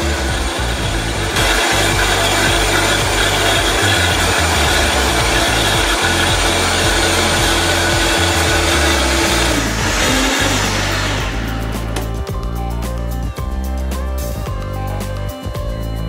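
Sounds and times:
blender running: 0.0 - 12.6
background music with steady beat: 0.0 - 16.0.

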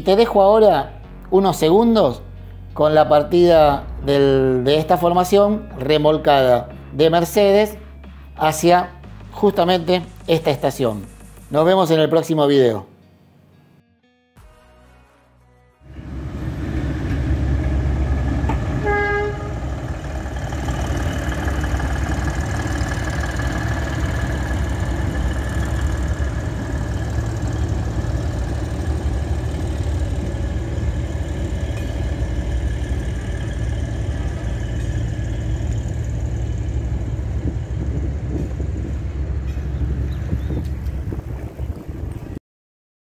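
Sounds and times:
train rumbling past: 15.9 - 42.4
train horn toot: 18.5 - 20.0.

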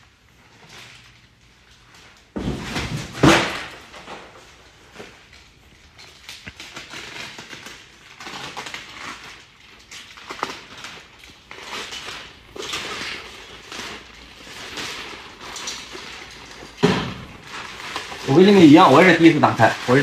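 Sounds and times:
plastic stretch wrap crinkling: 0.0 - 20.0.

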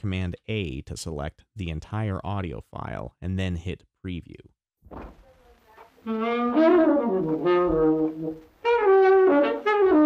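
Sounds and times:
saxophone melody: 6.0 - 10.0.

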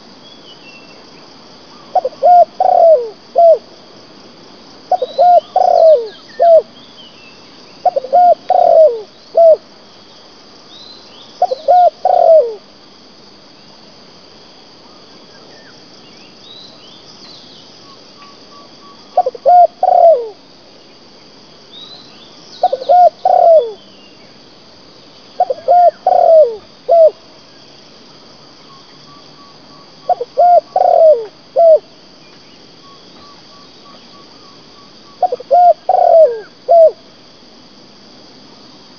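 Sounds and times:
high insect hum: 0.0 - 38.9
dove cooing: 1.9 - 3.7, 4.9 - 6.7, 7.8 - 9.6, 11.4 - 12.6, 19.2 - 20.4, 22.6 - 23.8, 25.4 - 27.2, 30.0 - 31.9, 35.2 - 37.0
faint bird chirps: 4.9 - 9.6, 10.7 - 12.6, 14.9 - 21.0, 21.7 - 24.4, 28.6 - 37.0.

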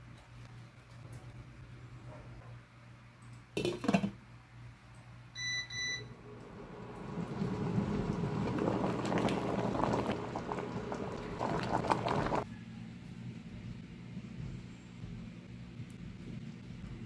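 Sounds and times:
water boiling in a pot: 6.1 - 12.5.

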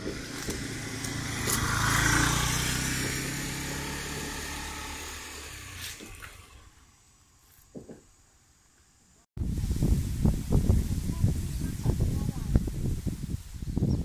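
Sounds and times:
motor engine running: 0.0 - 6.9.

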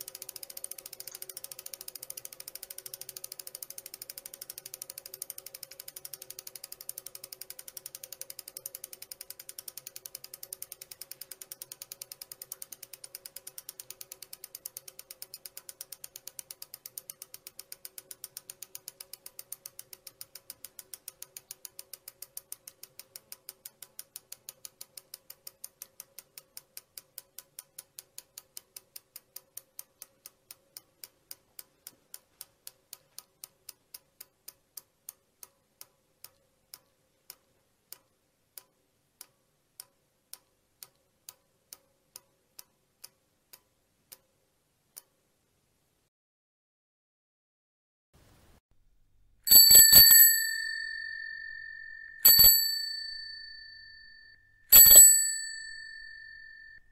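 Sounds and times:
bicycle freewheel ratchet clicking: 0.0 - 38.0, 49.5 - 56.8.

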